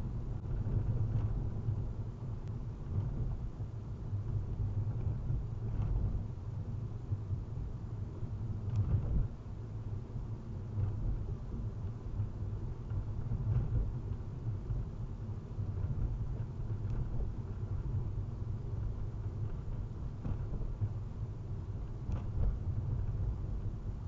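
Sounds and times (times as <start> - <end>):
car interior road rumble: 0.0 - 24.0
faint ticks: 8.6 - 9.3, 15.6 - 17.4.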